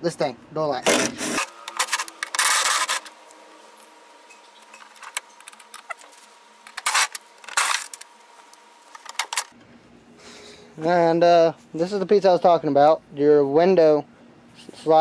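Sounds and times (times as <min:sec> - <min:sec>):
impact driver running: 0:00.9 - 0:03.1.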